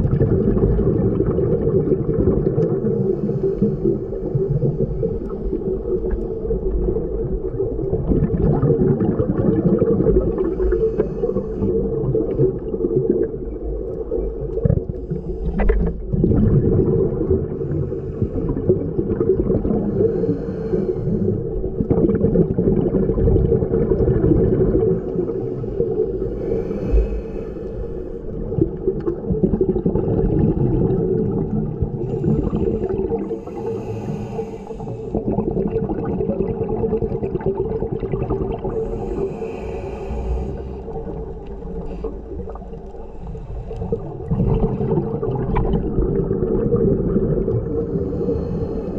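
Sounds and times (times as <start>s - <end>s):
exhaled bubbles: 0.0s - 48.9s
diver breathing through regulator: 2.6s - 6.5s, 10.2s - 12.0s, 15.0s - 16.1s, 17.6s - 19.0s, 19.6s - 21.7s, 24.9s - 28.4s, 31.9s - 35.6s, 38.6s - 45.4s, 47.6s - 48.9s.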